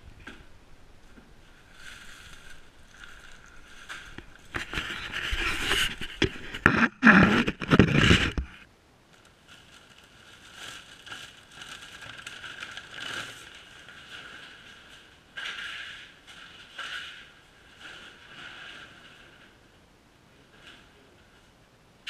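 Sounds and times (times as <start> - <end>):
handling knocks and scrapes: 0.1 - 8.7
plastic bag rustling: 0.3 - 19.7.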